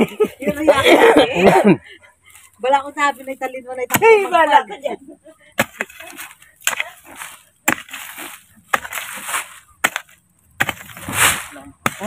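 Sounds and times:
hoe chopping into dry soil: 3.8 - 4.5, 5.6 - 12.0
gritty scrape of earth: 5.6 - 12.0.

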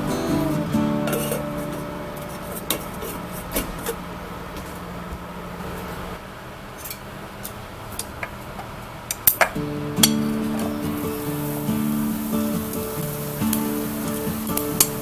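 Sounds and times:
boiling water hiss: 10.3 - 15.0.

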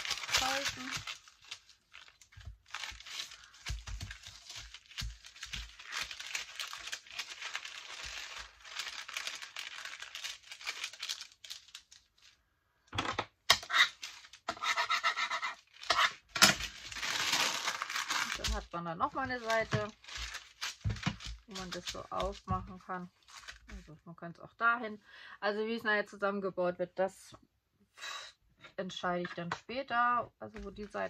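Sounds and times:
paper crinkling and rustling: 0.0 - 12.4, 13.7 - 14.8, 15.4 - 24.0.

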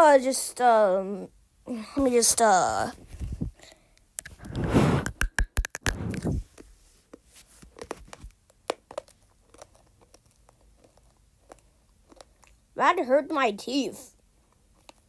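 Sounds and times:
hard mint crunching between teeth: 4.2 - 6.2, 7.7 - 12.7.

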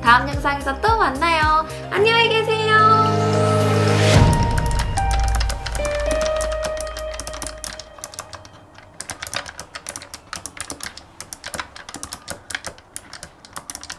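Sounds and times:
held music note: 1.9 - 9.0
fast typing on mechanical keyboard: 4.2 - 13.9.

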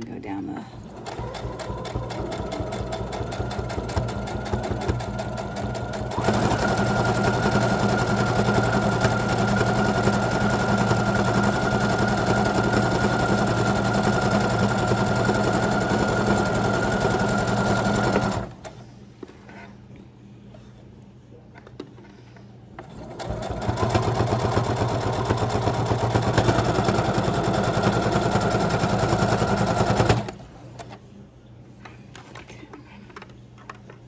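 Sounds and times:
electric sewing machine running: 0.9 - 18.6, 23.0 - 30.4.

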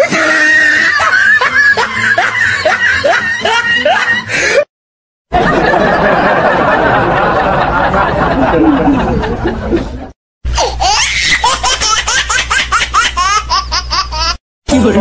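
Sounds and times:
high-pitched ha laugh: 0.0 - 4.4
mixed laughing: 0.1 - 4.7, 5.3 - 10.2.

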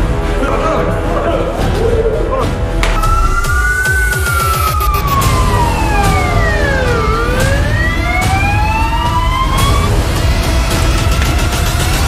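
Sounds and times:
emergency siren wailing: 3.0 - 10.4.

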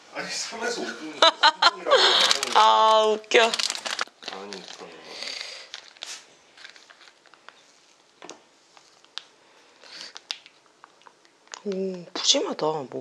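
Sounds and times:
foil pouch crinkling and tearing: 2.0 - 11.7.

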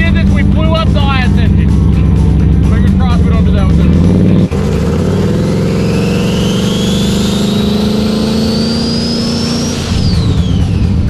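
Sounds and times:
engine accelerating hard: 0.0 - 11.0
turbo whistle rising: 5.7 - 11.0.

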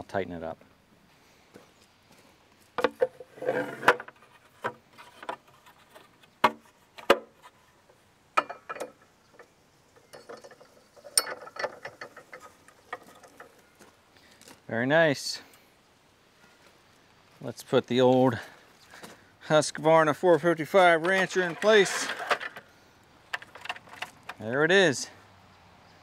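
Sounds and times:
rattling: 8.4 - 13.6, 20.8 - 22.7, 23.3 - 24.4.

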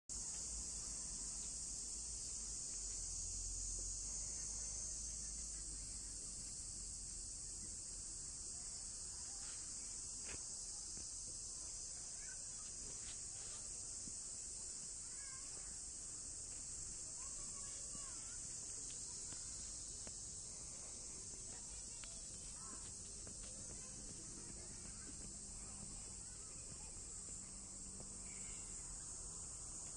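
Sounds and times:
insects buzzing shrilly: 0.2 - 29.9
faint chirps: 2.7 - 29.9.

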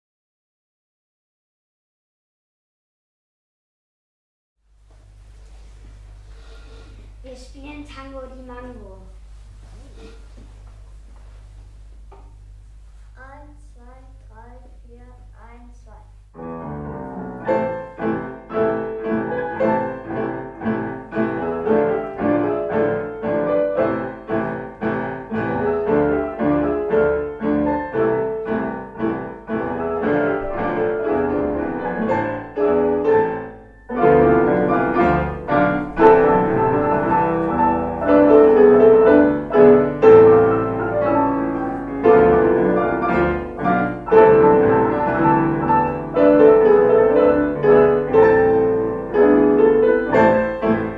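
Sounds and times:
piano tango music: 16.4 - 50.9.

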